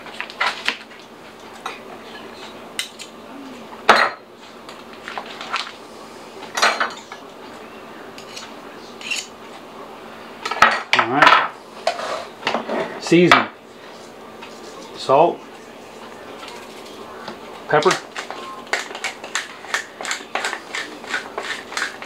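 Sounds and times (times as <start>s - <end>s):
knife scraping on a plate: 8.2s - 9.3s, 11.8s - 13.0s, 18.2s - 22.0s.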